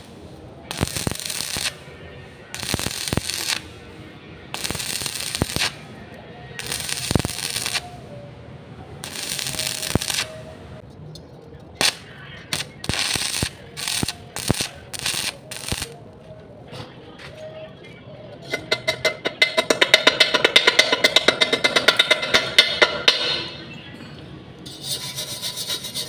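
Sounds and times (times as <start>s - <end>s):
welding arc crackling and hissing: 0.0s - 1.9s, 2.5s - 3.8s, 4.5s - 5.8s, 6.6s - 8.0s, 9.0s - 10.6s, 11.8s - 16.0s.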